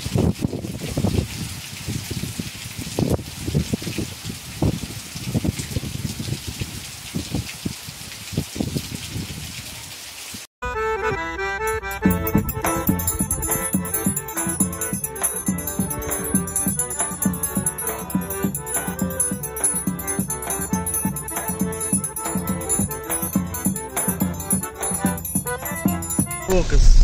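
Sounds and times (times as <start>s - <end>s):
music with steady beat: 10.8s - 26.7s.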